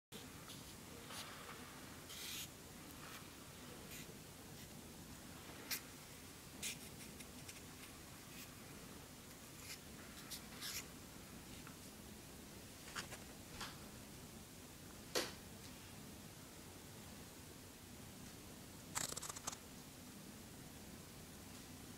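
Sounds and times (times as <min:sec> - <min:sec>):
scratchy clicks and rustles: 0:19.0 - 0:19.6.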